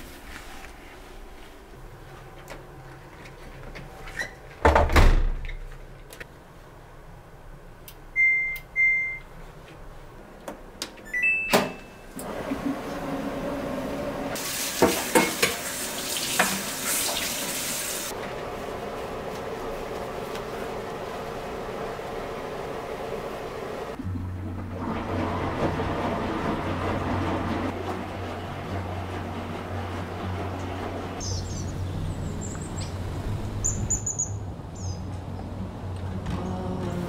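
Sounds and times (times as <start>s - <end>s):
short control panel beeps: 8.2s - 9.3s
water filling washing machine drum: 13.0s - 18.2s, 20.8s - 31.2s.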